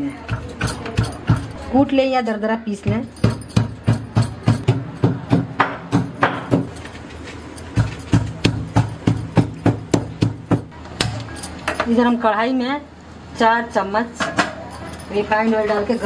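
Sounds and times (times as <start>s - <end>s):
mortar and pestle pounding: 0.0s - 1.8s, 2.8s - 11.3s.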